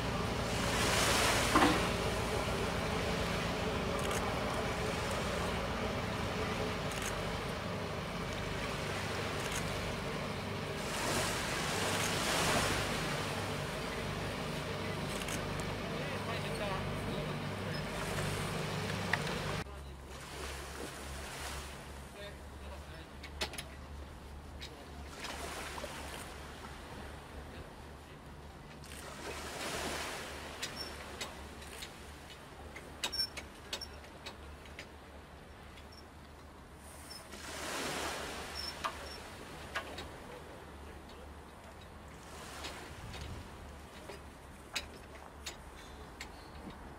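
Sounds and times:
steady low hum: 0.0s - 19.8s
boat engine running: 0.0s - 21.2s
waves and water: 0.0s - 46.9s
light clicks and clanks: 23.2s - 23.9s, 30.6s - 35.0s, 38.6s - 42.0s, 42.6s - 46.9s.

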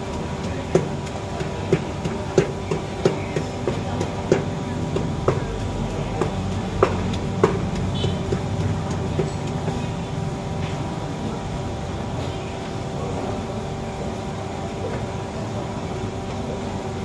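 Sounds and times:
pestle knocking in clay mortar: 0.0s - 10.1s
machine hum: 0.0s - 17.0s.

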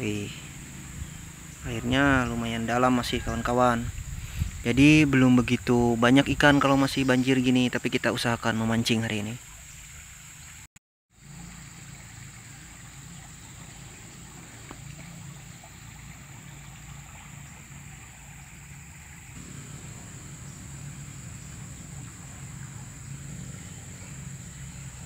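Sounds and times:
high-pitched hum: 19.4s - 25.0s.

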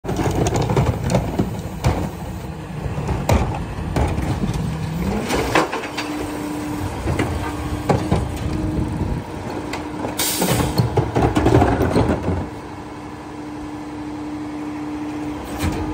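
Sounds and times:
garbage truck diesel engine: 0.0s - 15.9s.

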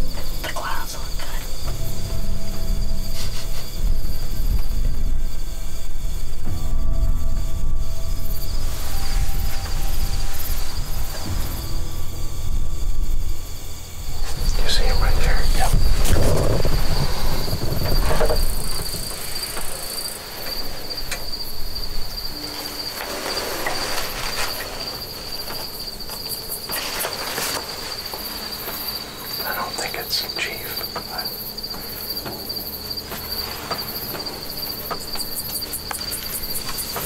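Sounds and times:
crickets trilling: 0.0s - 37.0s
faint rustles and clicks: 15.6s - 37.0s.

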